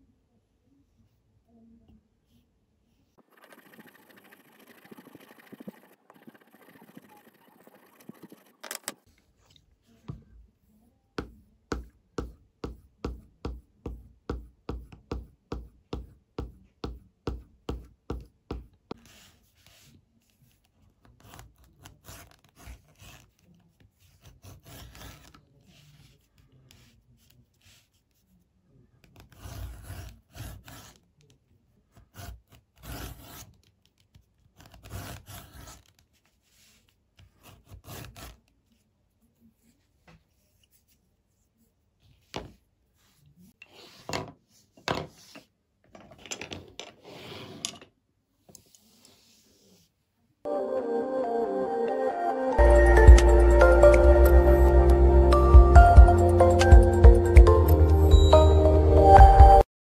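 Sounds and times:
blade scraping leather: 0:03.3 - 0:09.0, 0:24.1 - 0:25.4, 0:29.2 - 0:31.0, 0:37.4 - 0:38.5.

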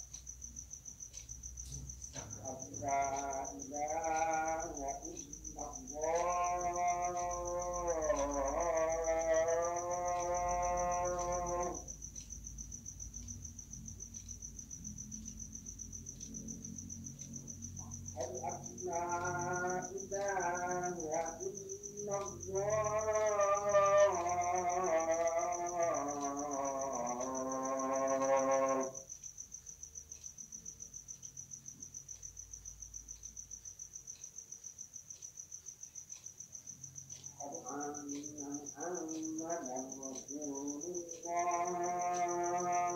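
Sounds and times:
cricket chirping: 0:00.0 - 0:42.9
man chanting: 0:01.6 - 0:11.9, 0:17.7 - 0:29.0, 0:37.4 - 0:42.9.

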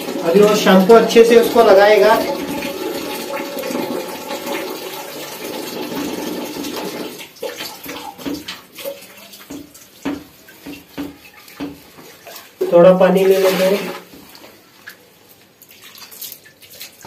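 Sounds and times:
water running: 0:00.0 - 0:17.0
wet rubbing of fur: 0:13.2 - 0:17.0.

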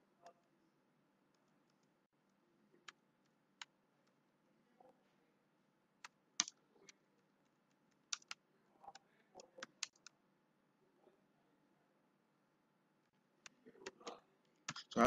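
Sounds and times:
faint keyboard keystrokes: 0:07.6 - 0:10.2.

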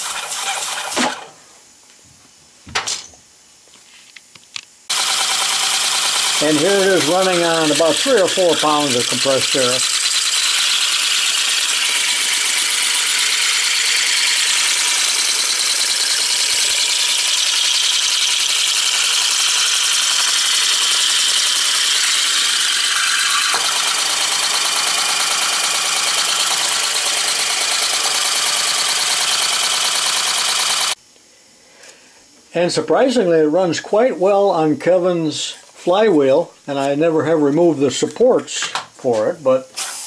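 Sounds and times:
model air engine clattering: 0:04.9 - 0:31.0
exhaust hiss: 0:39.6 - 0:40.0.

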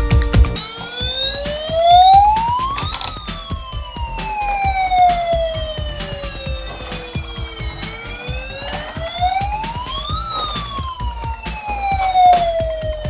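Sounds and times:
rapid clicking: 0:00.4 - 0:13.0
toy siren wailing: 0:00.6 - 0:13.0.

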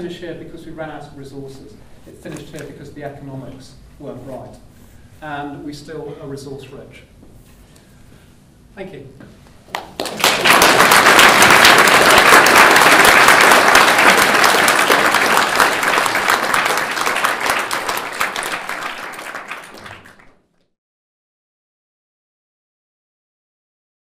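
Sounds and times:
audience applauding: 0:09.7 - 0:20.4.

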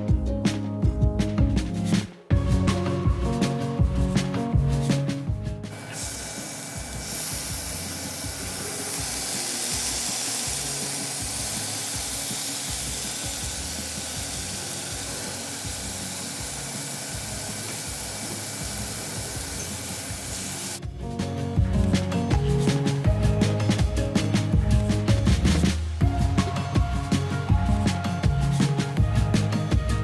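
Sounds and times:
food sizzling in a pan: 0:05.7 - 0:20.8.

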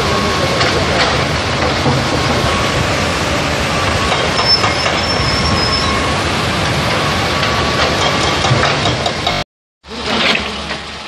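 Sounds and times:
heavy machinery diesel engines: 0:00.0 - 0:11.0
high metallic squeal: 0:03.9 - 0:08.2.

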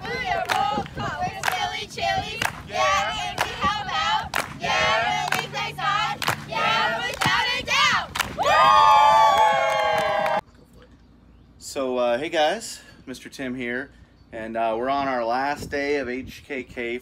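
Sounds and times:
girls chanting and singing: 0:00.0 - 0:08.5
hand claps: 0:04.3 - 0:04.6, 0:05.3 - 0:05.5, 0:06.2 - 0:07.4.

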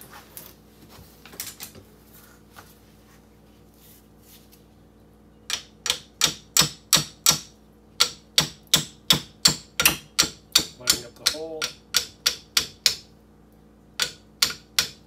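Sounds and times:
sharp metal taps: 0:05.5 - 0:13.1, 0:14.0 - 0:15.0.

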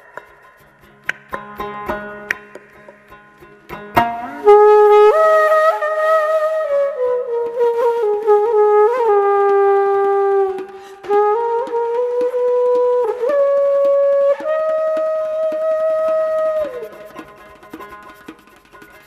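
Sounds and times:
solo wind instrument melody: 0:04.1 - 0:17.4.

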